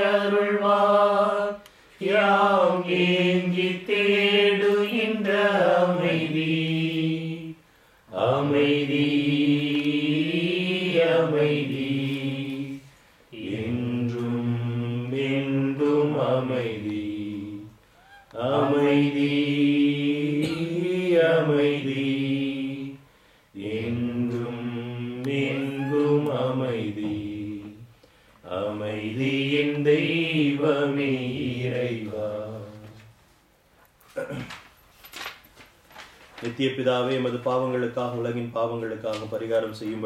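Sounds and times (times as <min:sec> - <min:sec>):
person singing a slow hymn: 0:00.0 - 0:33.2.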